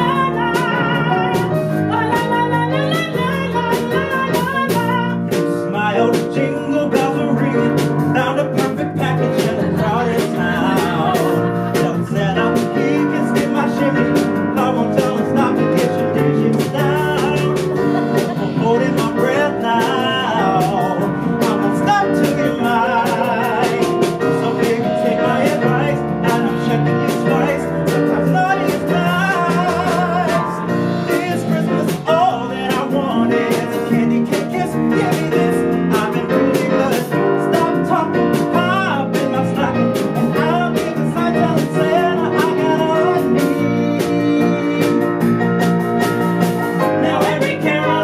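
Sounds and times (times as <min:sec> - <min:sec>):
woman singing: 0:00.0 - 0:07.7, 0:08.8 - 0:37.1
drums: 0:00.0 - 0:48.0
man singing: 0:00.0 - 0:48.0
piano: 0:00.0 - 0:48.0
electric guitar: 0:16.5 - 0:21.2.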